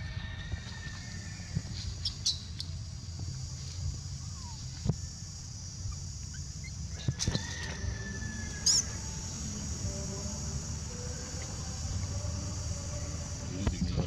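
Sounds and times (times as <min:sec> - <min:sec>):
high insect drone: 0:00.0 - 0:14.0.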